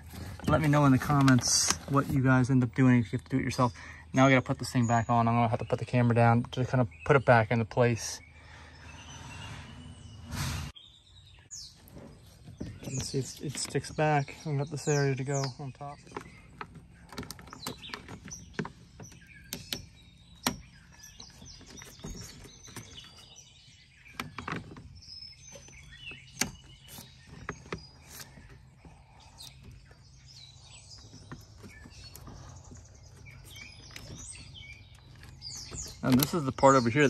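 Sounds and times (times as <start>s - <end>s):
birds chirping: 0.0s - 37.0s
plastic panel clicking and knocking: 16.0s - 23.2s.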